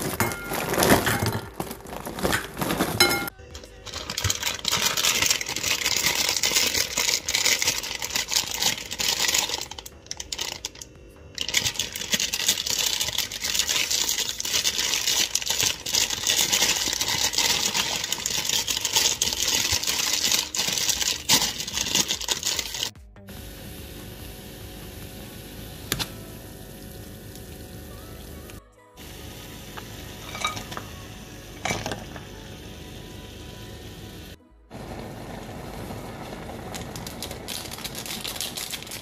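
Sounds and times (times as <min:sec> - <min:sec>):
plastic packet crinkling: 0:00.0 - 0:22.9, 0:36.4 - 0:39.0.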